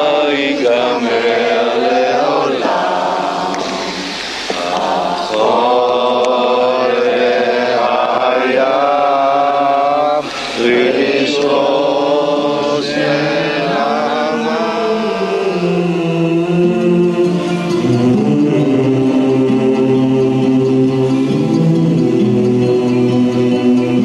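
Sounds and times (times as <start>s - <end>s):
group singing unaccompanied: 0.0s - 24.0s.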